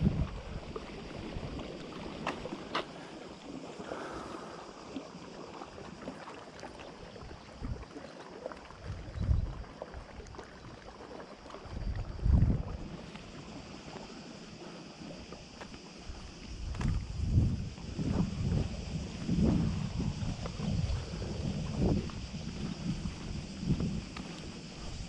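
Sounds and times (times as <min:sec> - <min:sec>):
wind gusting on microphone: 0:00.0 - 0:02.6, 0:08.8 - 0:09.6, 0:11.7 - 0:13.1, 0:16.0 - 0:25.0
hiss of wind and water: 0:00.0 - 0:25.0.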